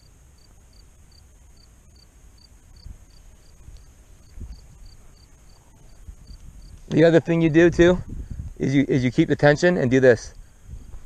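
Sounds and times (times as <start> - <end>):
cricket chirping: 0.0 - 6.9.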